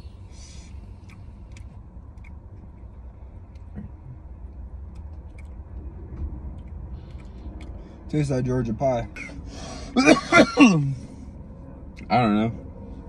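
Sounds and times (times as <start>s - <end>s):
breathy exhale hiss: 9.4s - 10.0s.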